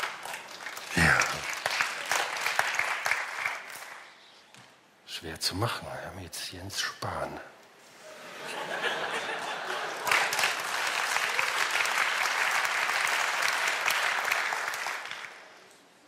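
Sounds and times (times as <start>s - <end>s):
audience applauding: 0.0s - 4.1s, 9.3s - 15.6s.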